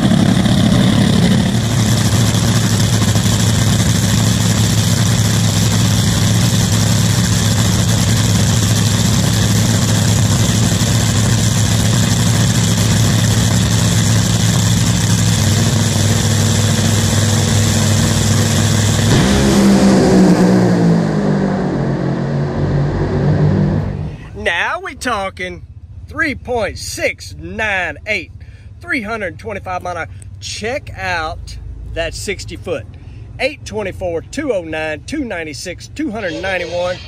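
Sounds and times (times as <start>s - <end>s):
dragster engine revving: 0.0s - 24.4s.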